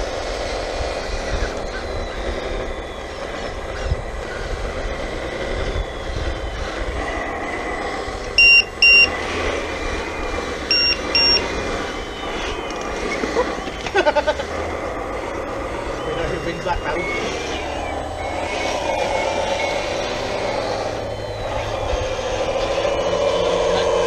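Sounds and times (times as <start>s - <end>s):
electric motors whining: 0.0s - 24.0s
short high beeps: 8.4s - 9.2s, 10.7s - 11.5s.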